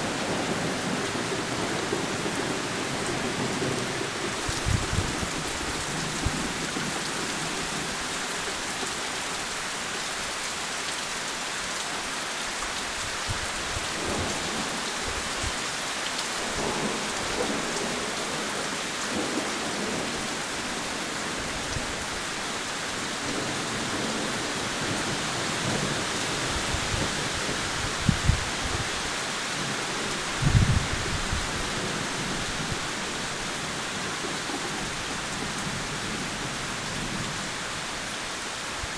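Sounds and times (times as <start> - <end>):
heavy rain pouring: 0.0 - 38.9.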